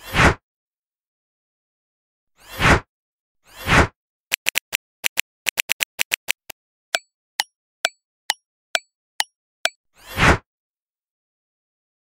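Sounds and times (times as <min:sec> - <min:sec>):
clock ticking: 0:04.3 - 0:06.5
keyboard typing clicks: 0:04.3 - 0:06.5.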